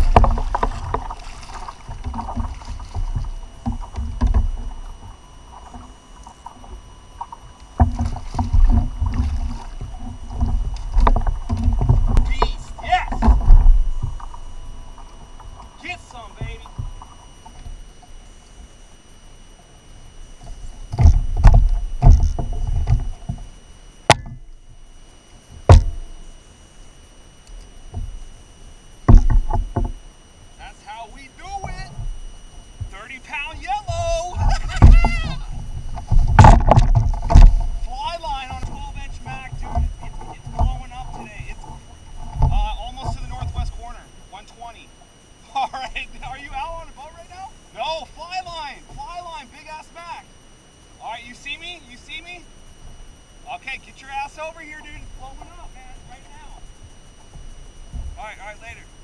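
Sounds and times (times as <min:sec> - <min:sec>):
knocks against kayak hull: 0:00.0 - 0:05.9, 0:06.6 - 0:15.6, 0:20.4 - 0:23.5, 0:24.1 - 0:24.5, 0:25.6 - 0:26.1, 0:29.0 - 0:30.0, 0:32.8 - 0:43.8
water sloshing: 0:00.0 - 0:26.3, 0:31.5 - 0:49.5.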